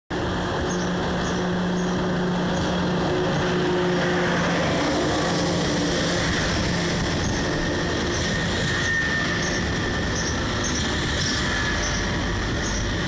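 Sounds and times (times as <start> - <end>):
bright high train sound: 0.1 - 13.0
electric train mechanical hum: 0.1 - 13.0.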